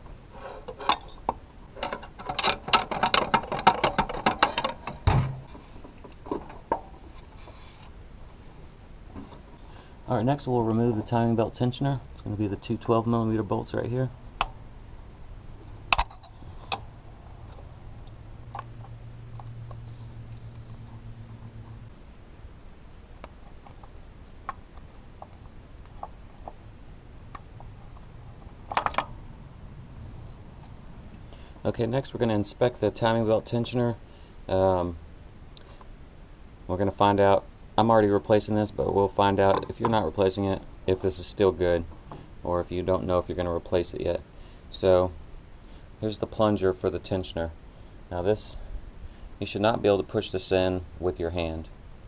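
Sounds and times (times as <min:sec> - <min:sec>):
heavy thud: 0:05.0 - 0:05.6.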